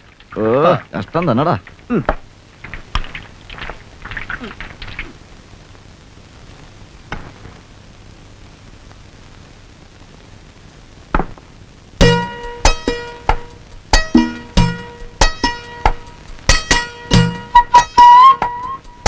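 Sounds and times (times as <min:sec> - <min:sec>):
plucked string notes: 0:12.0 - 0:19.0.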